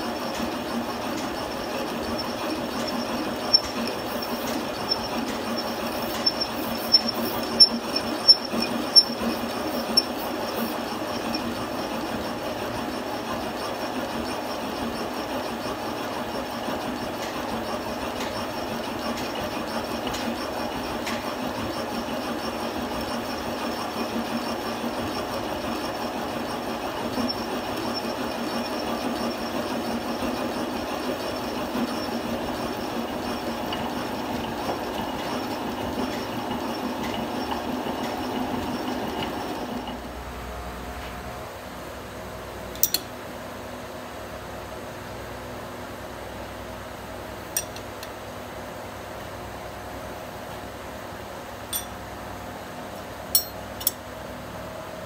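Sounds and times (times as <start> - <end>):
metal-on-metal grinding: 0.1 - 12.2, 42.8 - 43.1, 53.4 - 54.0.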